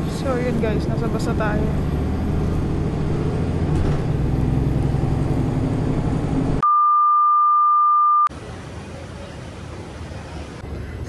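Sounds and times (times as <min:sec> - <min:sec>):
bus engine and road rumble: 0:00.0 - 0:06.6, 0:08.3 - 0:11.0
test-tone beep: 0:06.6 - 0:08.3.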